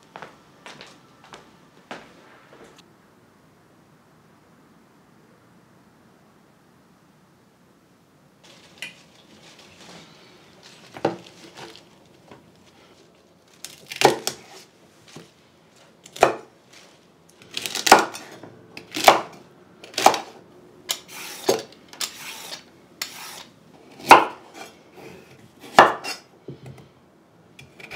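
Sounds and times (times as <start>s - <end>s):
celery stalks rustling: 8.4s - 16.0s, 16.6s - 17.9s.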